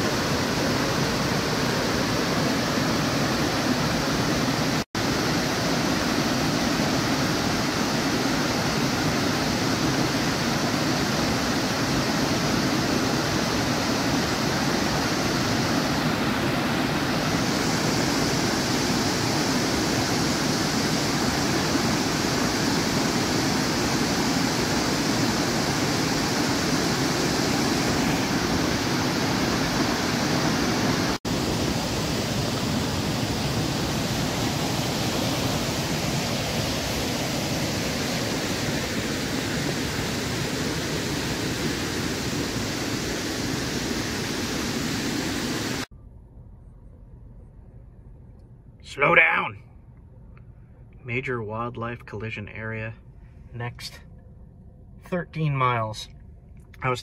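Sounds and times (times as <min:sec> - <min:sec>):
waterfall rushing: 0:00.0 - 0:45.9.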